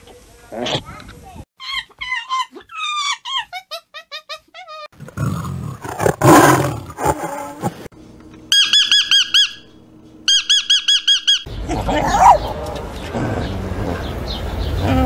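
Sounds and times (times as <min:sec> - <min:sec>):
bird chirping rapidly: 0:08.5 - 0:09.7, 0:10.3 - 0:12.5.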